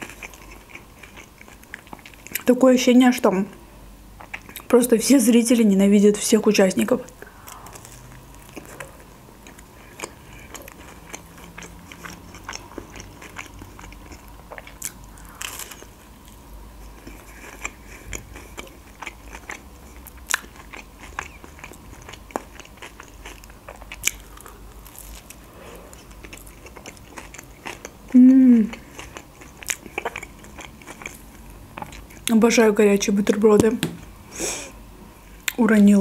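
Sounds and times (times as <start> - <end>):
person chewing crunchy toast: 0.0 - 2.4, 7.2 - 32.3.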